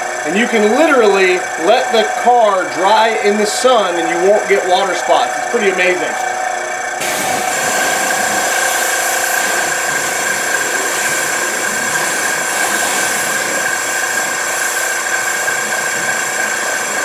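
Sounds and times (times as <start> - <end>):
electric pump whining: 0.0 - 17.0
hose spraying water: 7.0 - 17.0.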